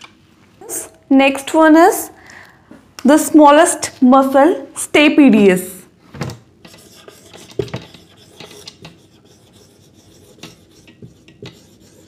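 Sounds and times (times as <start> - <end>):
marker writing on whiteboard: 6.6 - 12.0.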